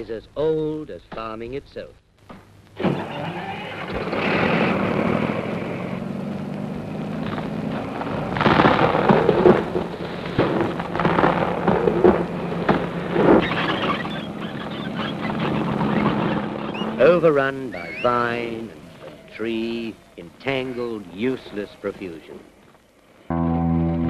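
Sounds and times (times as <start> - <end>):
trees crashing and crackling: 2.2 - 23.3
heavy machinery rumbling: 2.3 - 24.0.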